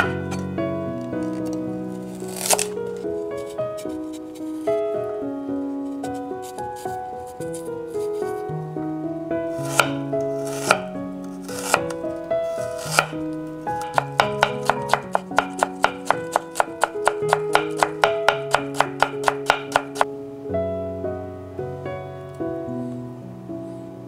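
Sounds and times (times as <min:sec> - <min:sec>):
background music: 0:00.0 - 0:24.0
knife chopping on wooden board: 0:09.6 - 0:11.9, 0:12.5 - 0:13.2, 0:13.8 - 0:20.1.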